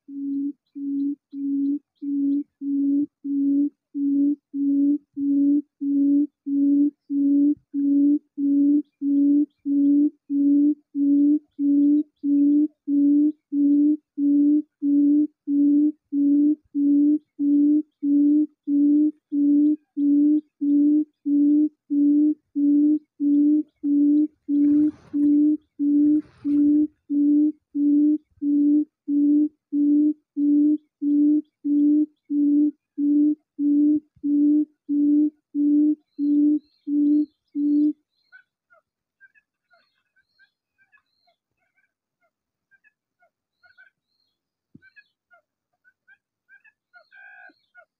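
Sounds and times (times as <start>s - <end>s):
recorded bird hooting call: 0.0s - 45.5s, 46.1s - 47.9s
faint rustle: 23.5s - 27.6s.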